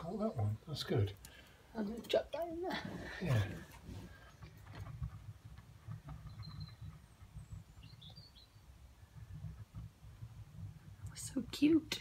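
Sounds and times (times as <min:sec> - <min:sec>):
bird chirping: 0:05.8 - 0:09.8.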